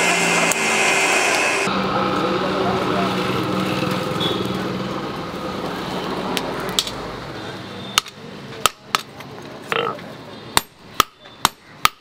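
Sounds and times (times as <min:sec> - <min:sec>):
power tool motor running: 0:00.0 - 0:01.7.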